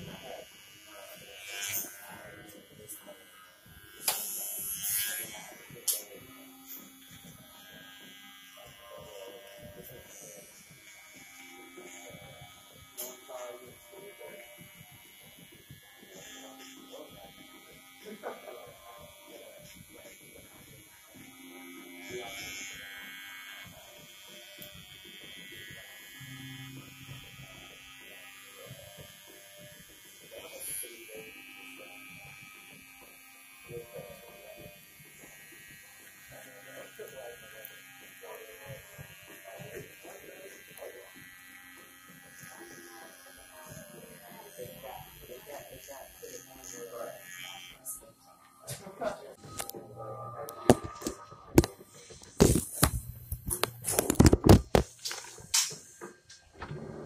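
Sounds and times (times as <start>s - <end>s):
hair trimmer buzzing: 0.0s - 56.6s.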